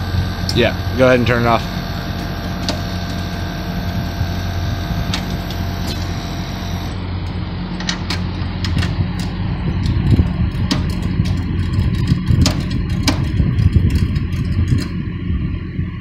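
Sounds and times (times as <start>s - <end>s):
faint high whine: 0.0s - 7.0s
air conditioner unit humming: 0.0s - 16.0s.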